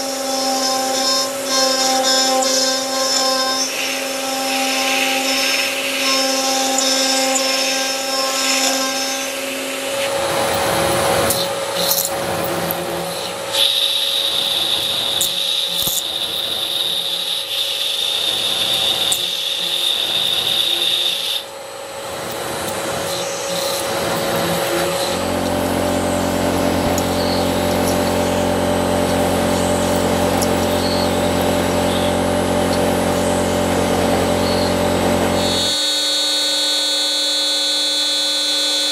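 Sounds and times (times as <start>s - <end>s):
cutter cutting metal: 0.0s - 38.9s
router spindle whine: 0.0s - 38.9s.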